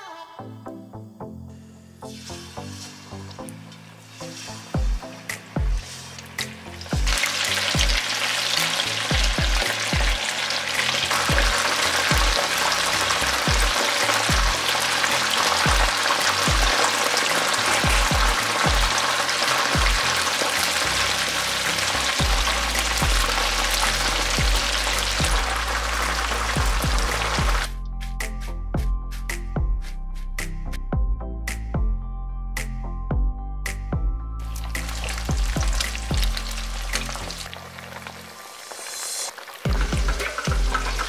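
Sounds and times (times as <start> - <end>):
food deep-frying in hot oil: 2.1 - 27.7, 34.5 - 41.0.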